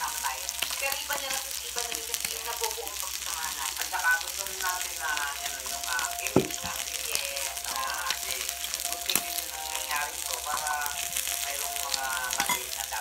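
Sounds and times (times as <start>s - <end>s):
meat sizzling on a grill: 0.0s - 13.0s
background music with singing: 4.0s - 13.0s.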